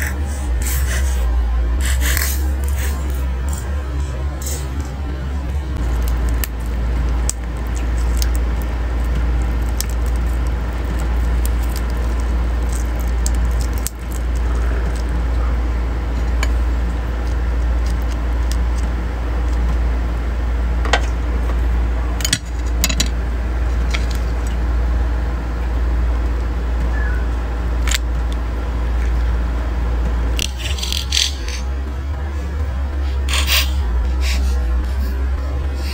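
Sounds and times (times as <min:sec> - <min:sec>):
steady low hum: 0:00.0 - 0:35.9
crab shells cracking: 0:05.8 - 0:15.3, 0:30.4 - 0:31.6.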